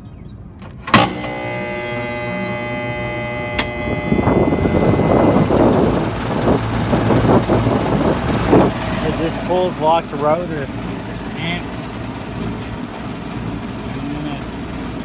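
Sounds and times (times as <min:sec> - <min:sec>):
compressor humming loudly: 0:00.6 - 0:15.0
steady rushing noise: 0:03.5 - 0:15.0.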